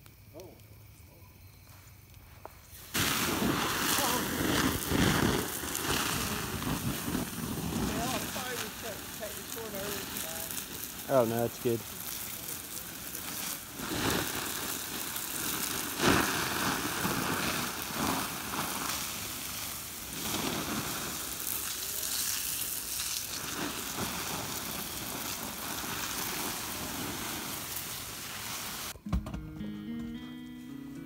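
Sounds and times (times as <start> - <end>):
embers sizzling: 0.0 - 29.0
hose spraying water: 2.7 - 29.0.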